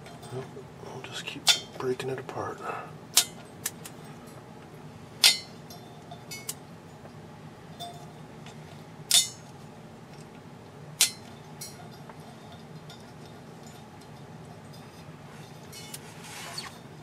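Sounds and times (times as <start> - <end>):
light clicks and clinks: 11.1 - 16.0.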